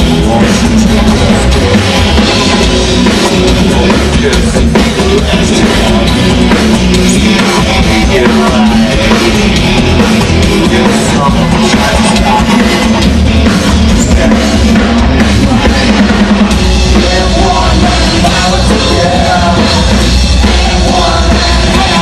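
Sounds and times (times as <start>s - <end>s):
bass guitar: 0.0s - 22.0s
drum kit: 0.0s - 22.0s
electric guitar: 0.0s - 22.0s.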